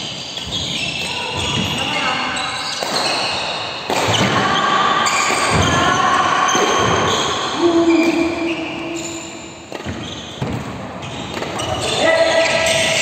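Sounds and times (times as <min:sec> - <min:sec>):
racket hitting shuttlecock: 0:02.7 - 0:04.5, 0:09.1 - 0:11.9.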